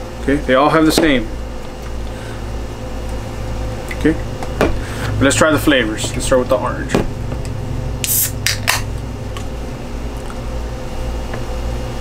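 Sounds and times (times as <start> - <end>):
steady low hum: 0.0 - 12.0
can opening hiss: 8.0 - 8.8
can clicks: 8.0 - 9.5.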